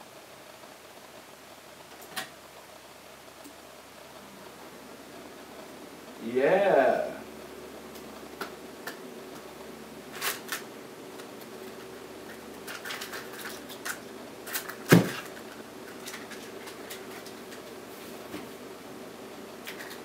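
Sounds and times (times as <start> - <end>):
faint steady hum: 0.0 - 20.0
plastic packaging crinkling: 10.1 - 17.8.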